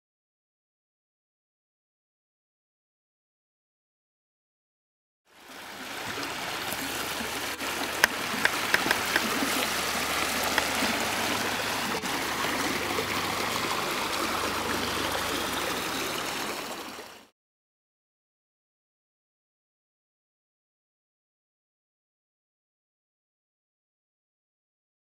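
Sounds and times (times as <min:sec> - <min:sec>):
water rushing along boat hull: 0:05.3 - 0:17.3
sharp ticks: 0:08.0 - 0:09.4.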